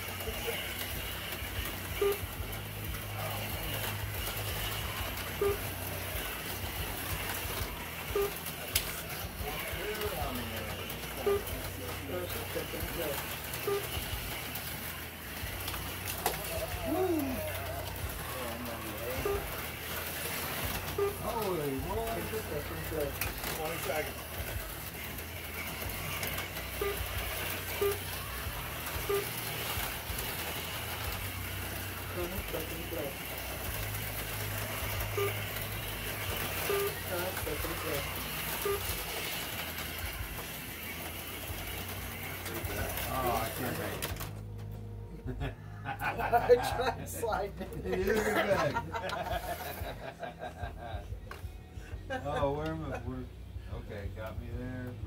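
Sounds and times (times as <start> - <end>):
small electric motors whirring: 0.0 - 44.7
short electronic beep: 38.6 - 39.0.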